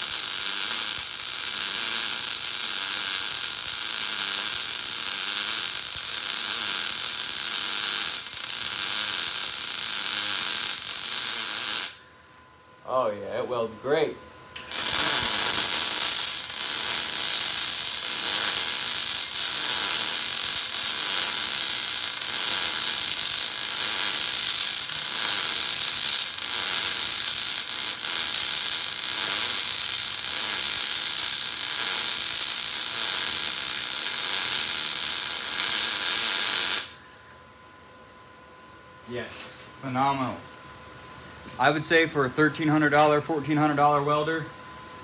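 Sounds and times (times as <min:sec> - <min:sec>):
welding arc crackling: 0:00.0 - 0:12.4, 0:14.6 - 0:37.4.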